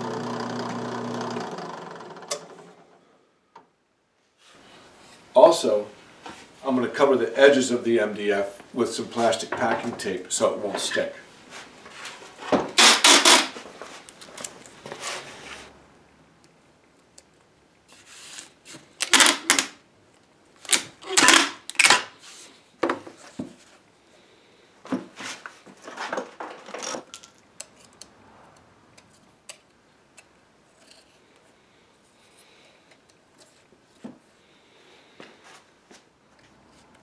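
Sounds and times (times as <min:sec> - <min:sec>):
packing tape pulled off dispenser: 0:12.8 - 0:14.2, 0:17.9 - 0:19.8, 0:20.6 - 0:22.2.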